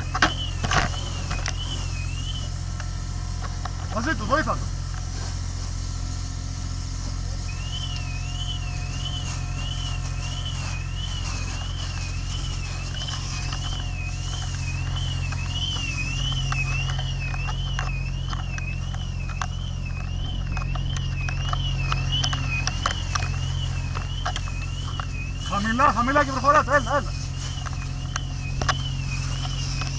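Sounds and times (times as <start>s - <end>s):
electronic alarm warbling: 0.0s - 3.1s, 7.4s - 29.9s
engine humming: 0.0s - 29.9s
fire pops and crackles: 0.0s - 29.9s
hose jet spraying: 0.0s - 29.9s.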